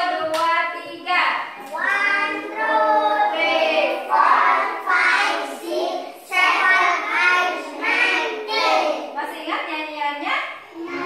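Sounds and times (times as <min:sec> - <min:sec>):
young children singing: 0:01.5 - 0:09.2, 0:10.7 - 0:11.0.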